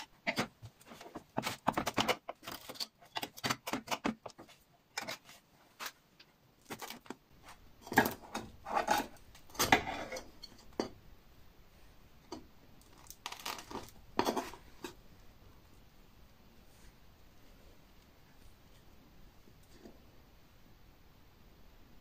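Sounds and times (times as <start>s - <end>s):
knife scraping metal tray: 7.8s - 10.8s.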